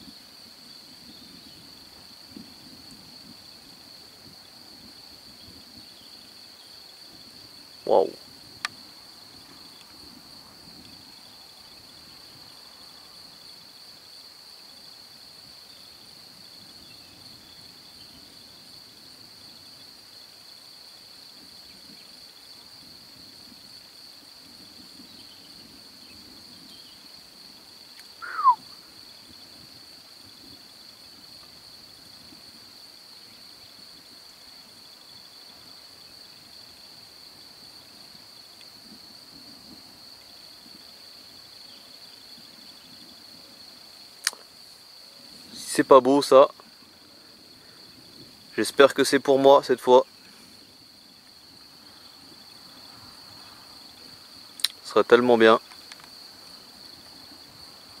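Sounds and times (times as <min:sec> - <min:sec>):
crickets chirring: 0:00.0 - 0:58.0
downward sliding whistle: 0:28.2 - 0:28.6.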